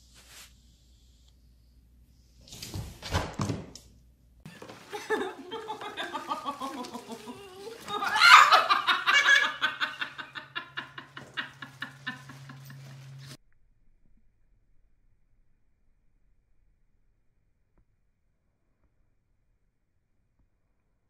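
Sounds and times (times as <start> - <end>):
person laughing hard: 4.5 - 13.4.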